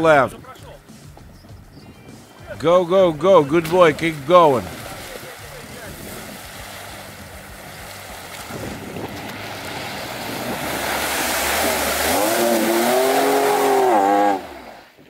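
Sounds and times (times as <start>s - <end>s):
tyres spinning through water: 3.1s - 15.0s
car engine revving hard: 6.3s - 15.0s
hiss of water spray: 9.4s - 14.9s.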